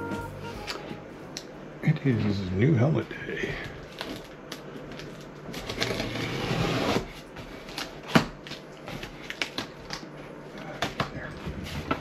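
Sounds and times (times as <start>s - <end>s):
packing tape rustling on cardboard: 3.7s - 12.0s.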